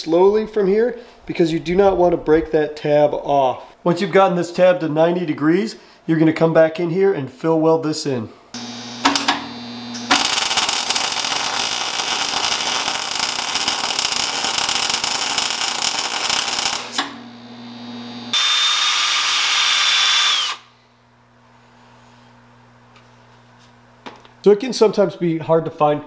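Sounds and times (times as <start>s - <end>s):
welder crackling: 8.6s - 17.4s, 18.3s - 20.7s
drill with wire wheel whining: 9.9s - 17.0s, 18.3s - 20.7s.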